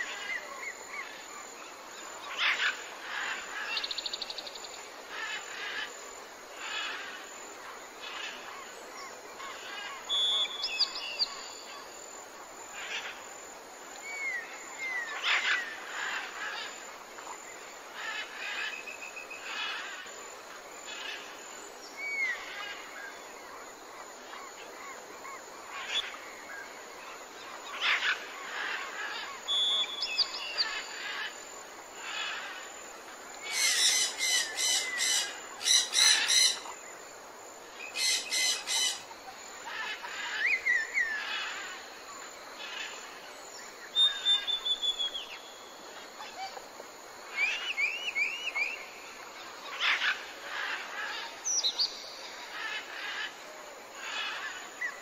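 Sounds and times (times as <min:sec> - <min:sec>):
birds chirping: 0:33.4 - 0:36.8, 0:37.8 - 0:39.1.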